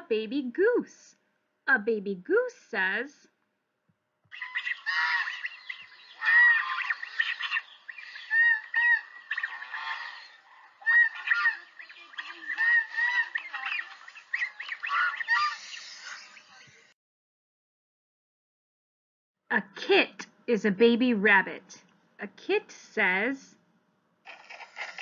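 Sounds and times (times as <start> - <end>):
geese calling: 4.3 - 16.7.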